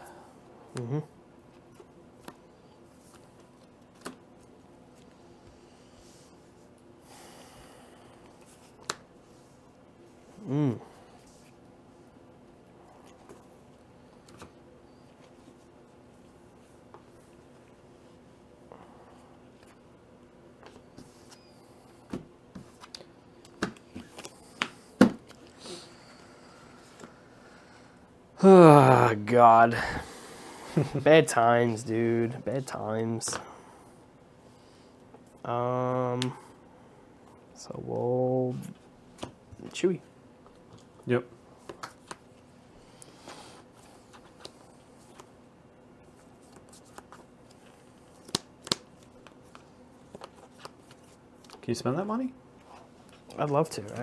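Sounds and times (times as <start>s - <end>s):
sharp card clicks: 48.2s - 49.1s.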